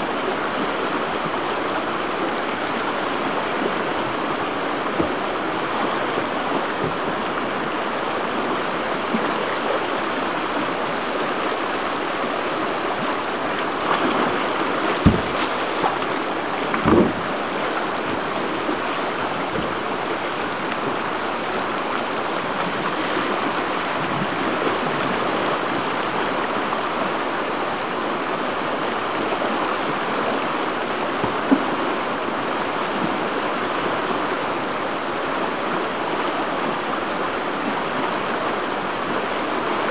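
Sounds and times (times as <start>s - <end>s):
whitewater rushing: 0.0s - 39.9s
low thumps: 15.0s - 15.5s.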